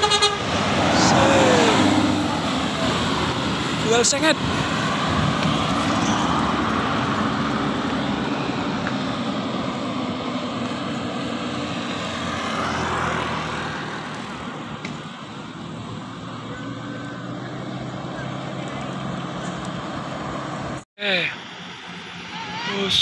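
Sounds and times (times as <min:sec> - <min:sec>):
bus engine and tyre noise: 0:00.0 - 0:23.0
motorcycle passing: 0:00.4 - 0:14.8.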